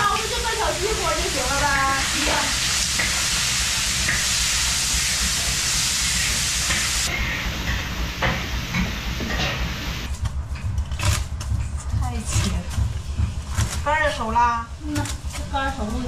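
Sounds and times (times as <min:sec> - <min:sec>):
steady sizzling hiss: 0:00.0 - 0:10.2.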